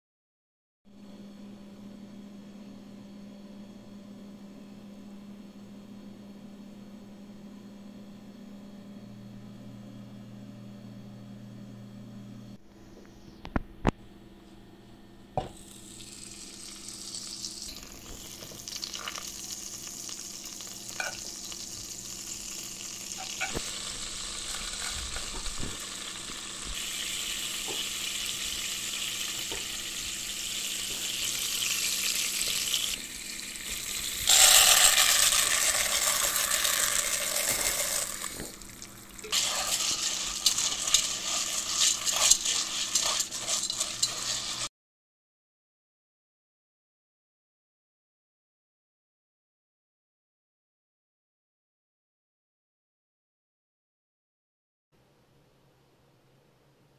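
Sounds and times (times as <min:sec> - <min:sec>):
butter sizzling in pot: 0:15.4 - 0:44.7
popcorn kernels sizzling: 0:15.4 - 0:44.7
whisk clicking in pot: 0:39.2 - 0:44.7.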